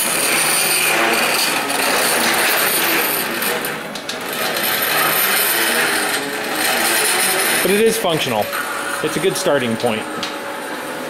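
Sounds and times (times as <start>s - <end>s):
stepper motor buzzing: 0.0s - 11.0s.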